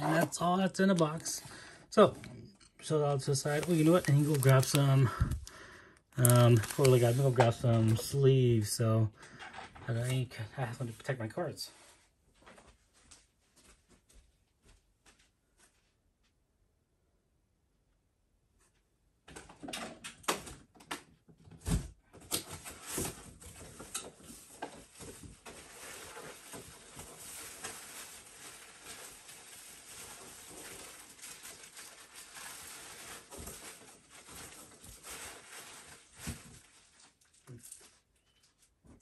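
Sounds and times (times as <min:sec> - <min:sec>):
rustling: 0:03.4 - 0:05.5.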